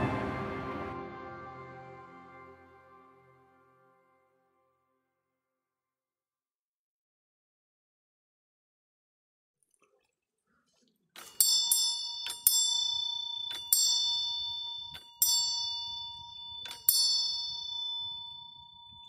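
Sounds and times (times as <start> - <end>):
small brass bell dinging: 11.2 - 19.0.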